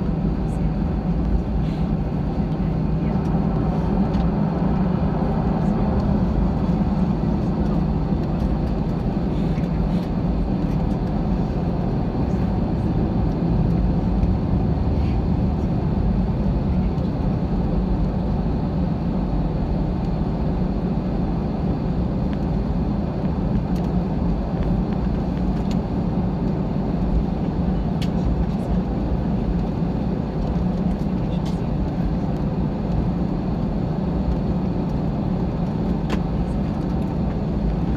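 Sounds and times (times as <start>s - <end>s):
jet engines rumbling in cabin: 0.0s - 37.9s.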